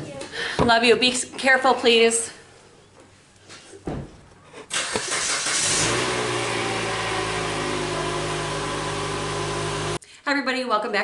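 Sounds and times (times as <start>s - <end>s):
motor starting and humming: 5.0s - 10.0s.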